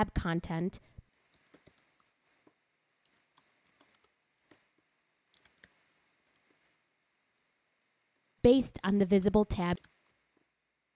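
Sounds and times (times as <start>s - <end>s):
typing on computer keyboard: 1.0s - 6.5s, 9.0s - 10.5s.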